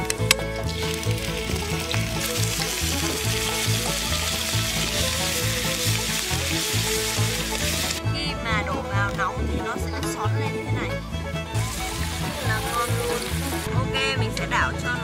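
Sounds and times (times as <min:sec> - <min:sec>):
meat sizzling in hot oil: 0:00.6 - 0:08.0, 0:11.6 - 0:13.7.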